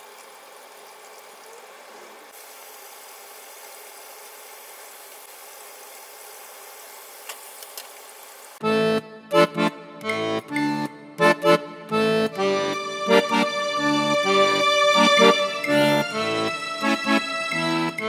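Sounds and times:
hiss-like background noise: 0.0s - 8.6s
music: 8.6s - 18.0s.

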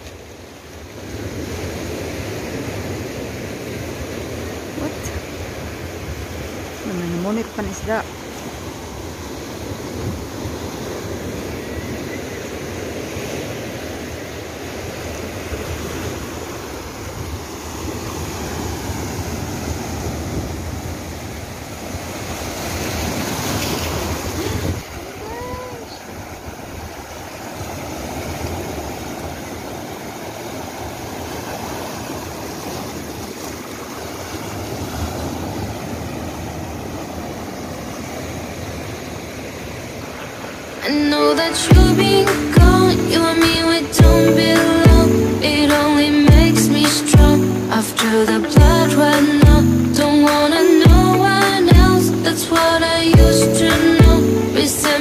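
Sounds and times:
waves breaking over rocks: 0.0s - 55.0s.

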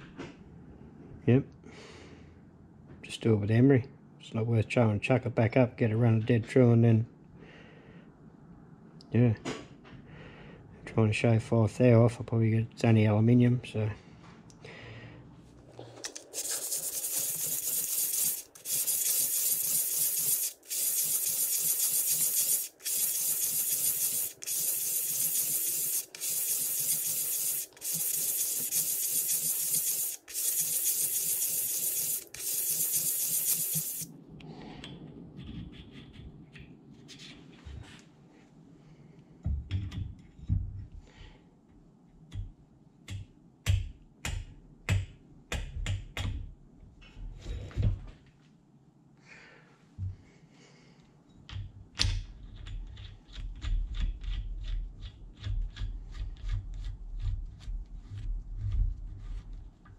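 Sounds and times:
metal rubbing on emery paper: 15.8s - 34.1s, 56.1s - 59.8s.

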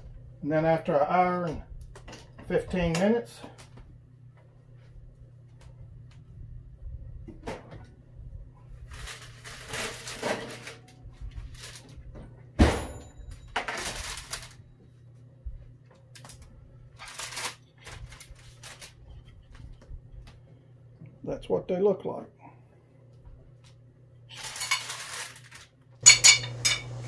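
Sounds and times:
steady low hum: 0.0s - 17.0s, 26.0s - 27.0s
paper and towel rustling: 8.7s - 12.2s, 13.8s - 20.4s, 24.3s - 25.7s
baking tray knock: 26.0s - 27.0s.

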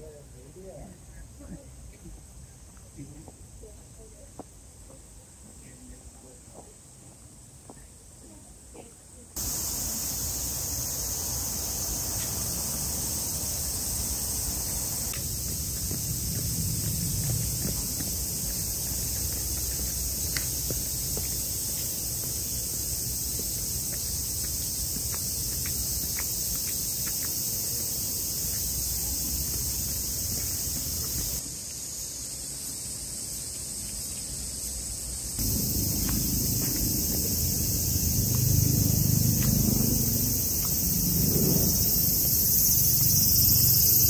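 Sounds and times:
high-pitched insect chorus: 0.0s - 44.0s
low background rumble: 14.7s - 20.8s, 35.4s - 43.4s.

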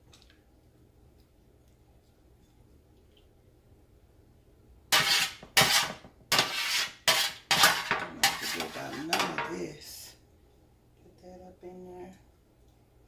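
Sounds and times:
metal spatula scraping sheet pan: 4.9s - 9.6s.

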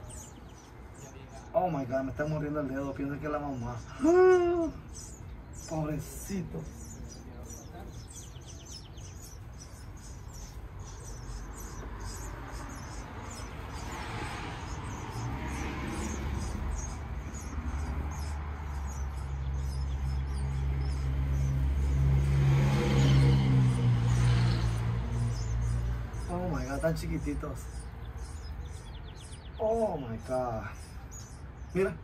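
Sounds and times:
nestling birds cheeping: 0.0s - 32.0s
passing vehicle engine hum: 6.6s - 28.8s.

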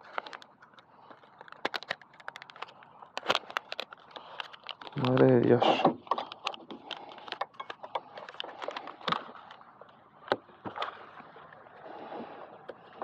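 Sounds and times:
velcro clicks and scrapes: 0.0s - 5.2s.

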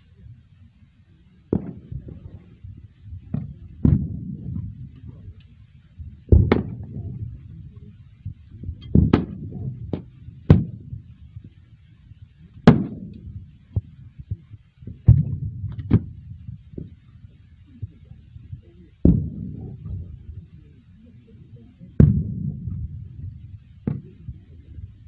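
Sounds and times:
low rumble: 1.2s - 25.0s
gunshots: 1.5s - 2.5s, 6.3s - 7.4s, 8.8s - 11.0s, 12.6s - 13.4s, 19.0s - 20.1s, 22.0s - 24.4s.

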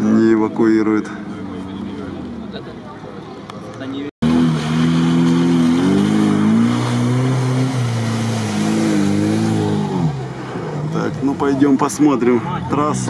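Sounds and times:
engine revving in mud: 4.2s - 11.6s.

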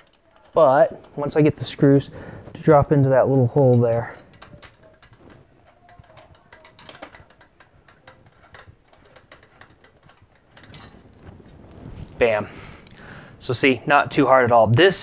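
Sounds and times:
screwdriver clicking on metal: 2.8s - 11.3s.

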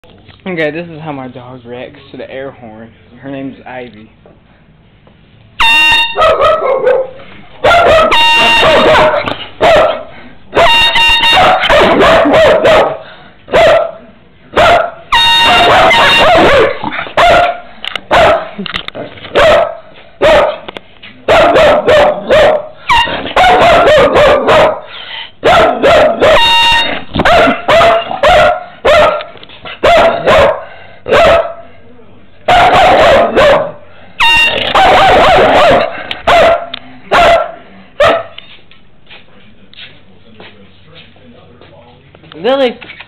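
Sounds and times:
air horn blasts: 5.6s - 6.3s, 8.0s - 9.2s, 10.5s - 11.7s, 15.1s - 16.7s, 22.8s - 23.3s, 26.2s - 27.1s, 34.2s - 35.0s
dog barking loudly: 6.2s - 18.6s, 19.3s - 20.7s, 21.3s - 31.6s, 32.5s - 38.4s.

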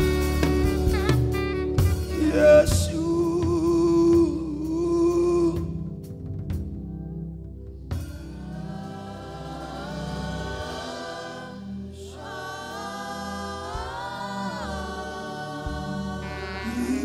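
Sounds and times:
gospel worship singing: 2.0s - 6.0s, 8.2s - 17.0s
low sustained instrumental accompaniment: 2.9s - 17.0s.

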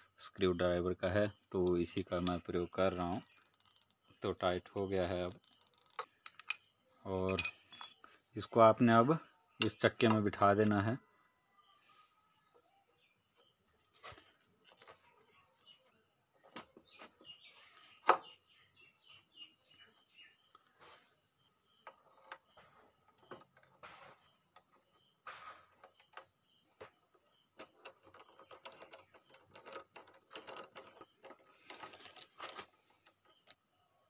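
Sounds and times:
birds chirping: 0.0s - 34.0s
metal clinks and scrapes: 5.4s - 8.1s, 27.6s - 32.8s.

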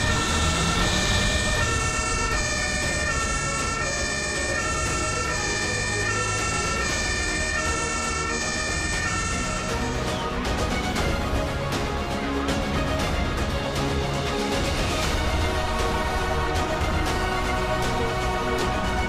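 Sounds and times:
two-tone siren: 0.0s - 11.4s, 15.0s - 19.0s
truck engine running: 0.0s - 11.6s.

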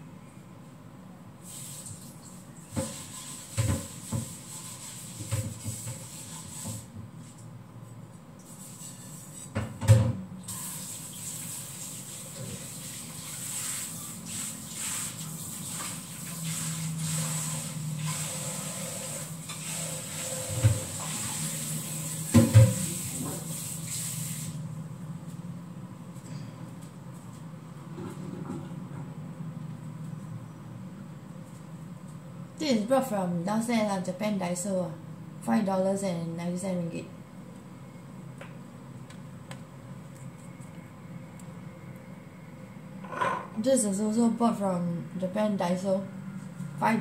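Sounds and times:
kitchen tap running into sink: 10.5s - 24.6s
dishes clattering in a basin: 43.0s - 43.6s.

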